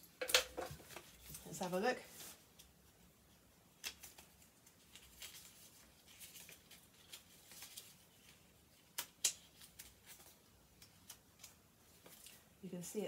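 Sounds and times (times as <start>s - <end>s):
paper snaps: 3.8s - 5.5s, 8.8s - 11.6s
paper pages rustling: 3.8s - 12.4s.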